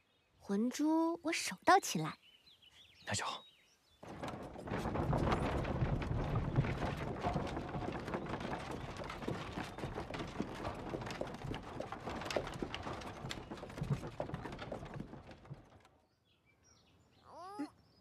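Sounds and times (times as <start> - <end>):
horse hooves clopping on dirt: 4.0 - 16.1
wooden carriage wheels rattling: 4.0 - 16.1.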